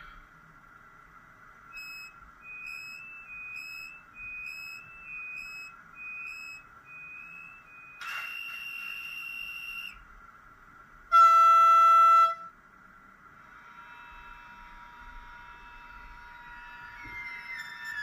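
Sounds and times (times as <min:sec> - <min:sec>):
short high beeps: 0:01.8 - 0:10.0.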